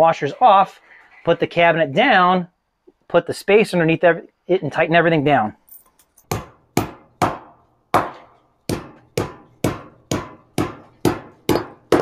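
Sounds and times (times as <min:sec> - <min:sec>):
hammer tapping metal bolts: 0:06.2 - 0:12.0.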